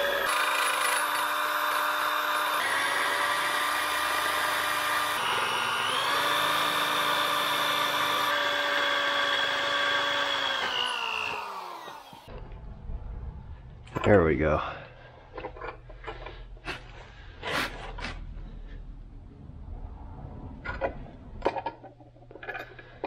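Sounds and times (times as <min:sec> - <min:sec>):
electric drill boring through steel: 0:00.0 - 0:12.3.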